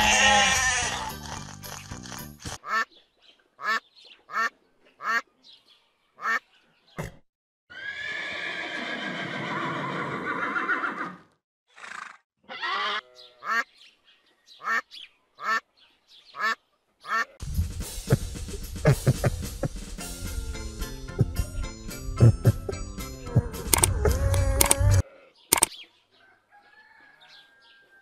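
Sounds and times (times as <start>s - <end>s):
horse whinnying: 0.0s - 1.6s, 7.7s - 11.2s
ducks quacking: 2.5s - 3.0s, 3.6s - 5.3s, 6.2s - 6.5s, 12.5s - 13.7s, 14.6s - 15.7s, 16.3s - 17.4s.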